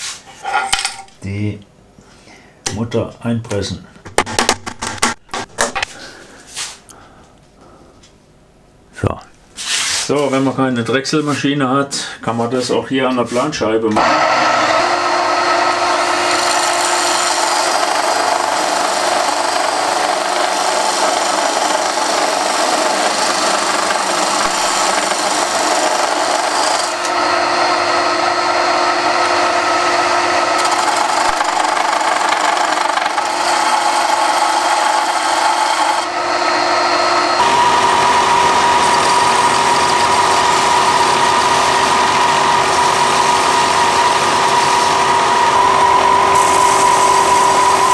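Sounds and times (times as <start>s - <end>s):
belt sander humming: 14.0s - 47.9s
disc sander grinding: 14.0s - 47.9s.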